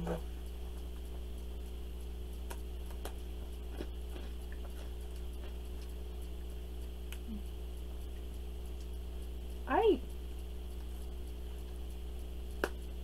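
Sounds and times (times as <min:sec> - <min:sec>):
low hum: 0:00.0 - 0:13.0
rice cracker crunching: 0:02.4 - 0:06.1.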